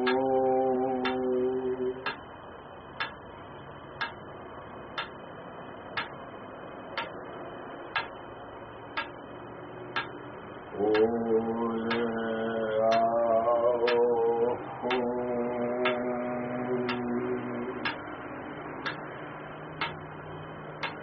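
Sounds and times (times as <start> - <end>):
metronome ticking: 0.0 - 0.3, 1.0 - 1.4, 2.0 - 2.3, 2.9 - 3.3, 3.9 - 4.3, 4.9 - 6.3, 6.9 - 7.3, 7.9 - 8.3, 8.9 - 11.2, 11.8 - 13.2, 13.8 - 14.1, 14.8 - 15.2, 15.8 - 16.1, 16.8 - 18.2, 18.8 - 21.0
person singing mantra note: 0.0 - 2.2, 10.7 - 18.0.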